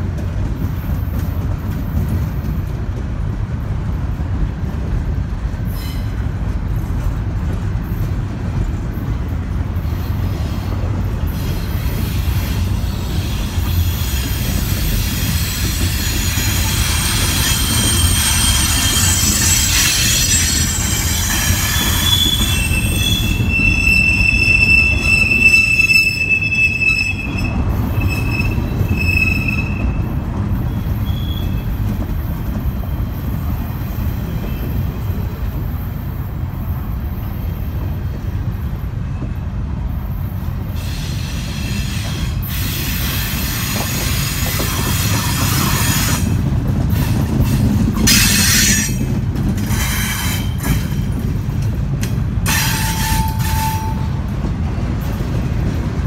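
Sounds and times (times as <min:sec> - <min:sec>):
train wheels rumbling on rail: 0:00.0 - 0:56.0
hissing screech: 0:12.2 - 0:29.8
high-pitched wheel squeals: 0:13.8 - 0:30.1, 0:30.7 - 0:31.8.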